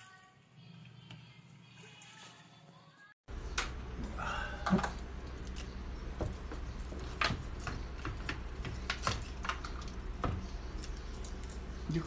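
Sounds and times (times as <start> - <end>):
steady low hum: 3.3 - 12.0.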